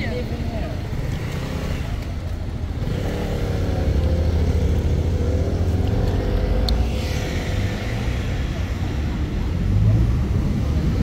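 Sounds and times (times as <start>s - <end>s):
low traffic rumble: 0.0s - 11.0s
vehicle engine accelerating: 2.7s - 11.0s.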